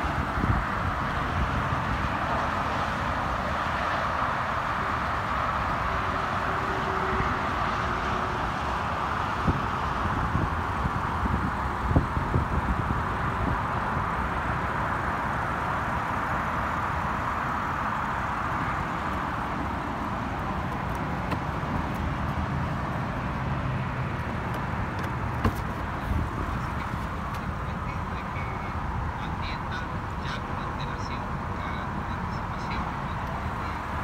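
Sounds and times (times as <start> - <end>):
car door opening: 21.2 - 22.0, 24.5 - 27.5.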